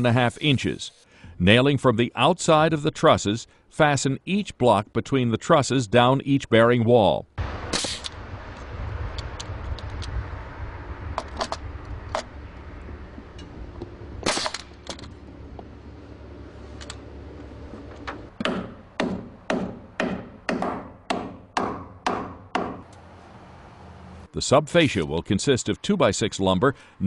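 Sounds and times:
low steady rumble: 7.4s - 18.3s
nail gun shots: 7.7s - 8.2s, 14.2s - 14.8s.

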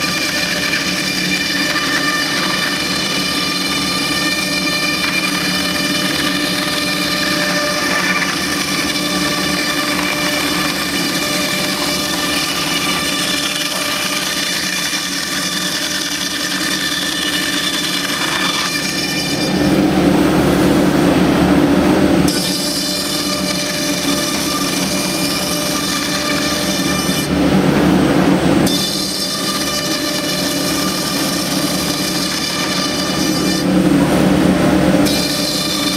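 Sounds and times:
cnc router spindle whine: 0.0s - 35.9s
router cutting fiberboard: 0.0s - 35.9s.

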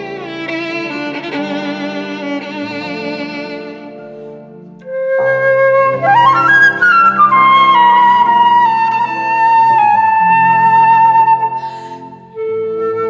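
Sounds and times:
violin phrase: 0.0s - 5.1s
flute melody: 0.0s - 13.0s.

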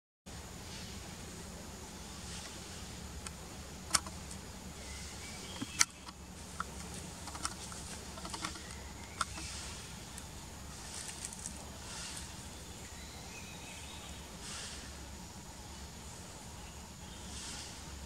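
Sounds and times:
steady hiss: 0.3s - 18.0s
leaves and twig crackling: 3.9s - 13.0s.

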